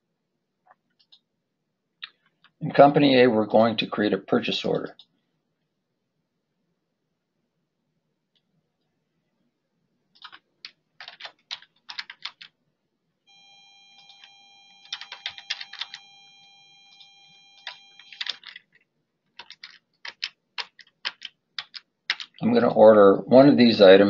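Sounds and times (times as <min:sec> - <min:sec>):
keyboard typing: 0:10.1 - 0:12.6, 0:13.8 - 0:22.4
faint high whine: 0:13.3 - 0:18.4.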